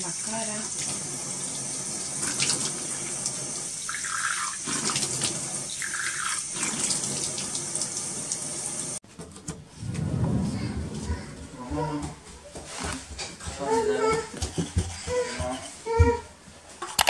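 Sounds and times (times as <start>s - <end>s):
water splashing on face: 2.0s - 8.5s.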